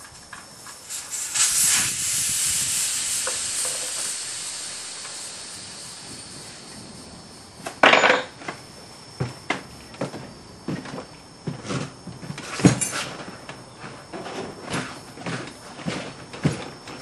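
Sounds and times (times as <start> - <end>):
air hissing out of a tyre: 0.0 - 7.9.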